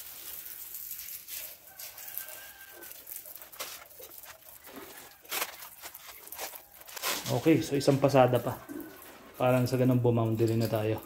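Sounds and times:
water spray hissing from nozzle: 0.0 - 6.1.

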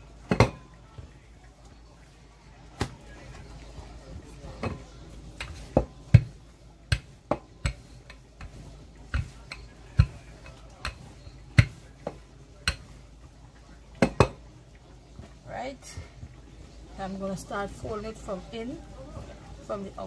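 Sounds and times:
rolling pin knocking on counter: 0.3 - 0.6, 5.4 - 11.0, 14.0 - 14.4
rolling pin on dough: 2.8 - 13.4.

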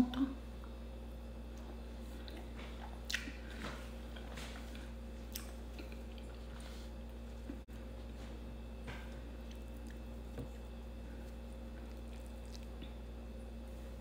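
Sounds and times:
steady low hum: 0.0 - 14.0
chewing and mouth sounds: 1.5 - 7.6, 9.1 - 14.0.

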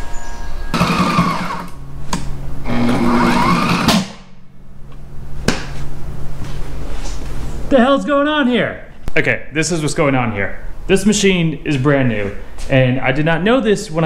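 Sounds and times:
sewing machine stitching canvas: 0.7 - 1.8, 2.7 - 4.1.

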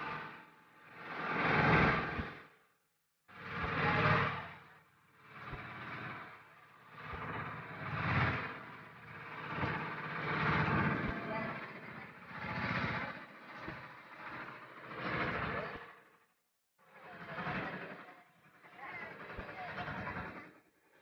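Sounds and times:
motorboat engine running: 3.3 - 14.2.

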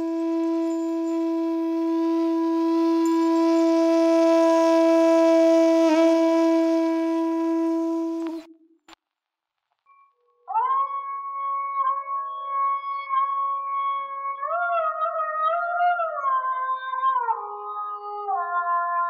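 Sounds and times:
wind instrument holding a note: 0.0 - 8.6.

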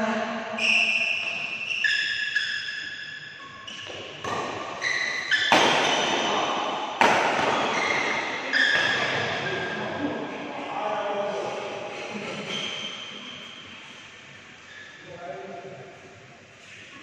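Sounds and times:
shoes squeaking on court: 0.6 - 9.8, 14.6 - 15.0
rackets hitting shuttlecock: 3.6 - 9.5.

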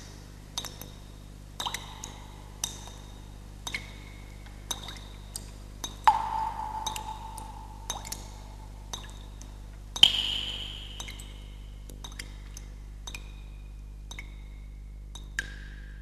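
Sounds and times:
steady low hum: 0.0 - 16.0
sharp metallic pings: 6.1 - 9.1, 10.0 - 11.6.

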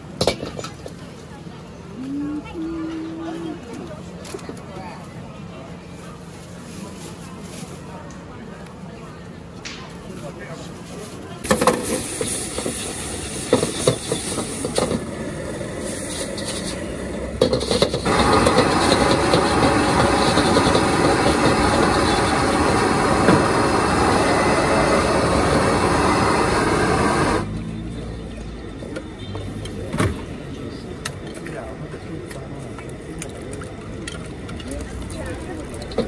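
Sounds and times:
loud steady hiss: 11.4 - 27.6.

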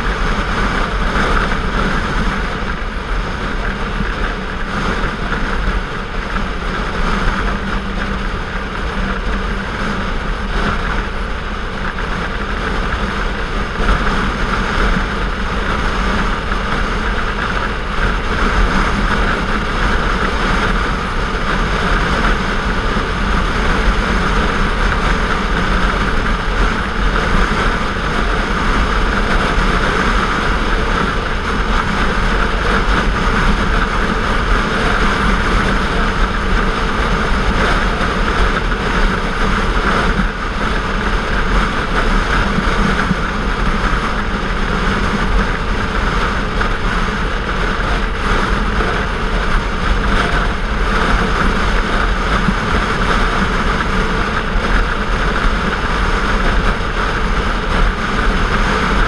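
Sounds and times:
motorcycle engine humming: 0.0 - 59.0
wind and road noise: 0.0 - 59.0.

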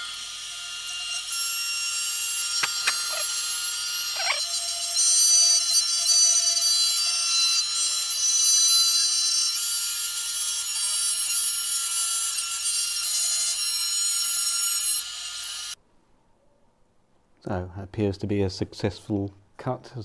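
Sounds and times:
router bit cutting plywood: 2.5 - 4.4.

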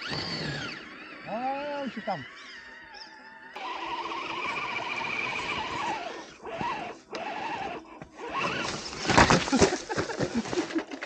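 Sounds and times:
electric motor whining: 0.0 - 9.2
loud crackling and scraping: 8.2 - 11.0.

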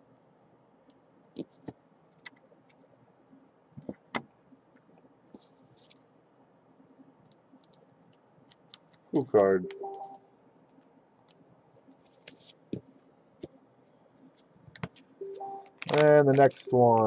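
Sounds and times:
plastic sleeve crinkling: 15.8 - 17.0.

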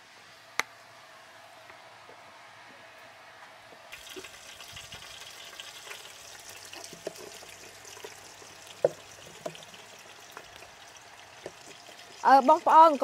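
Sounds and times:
liquid hissing and crackling: 3.9 - 13.0.

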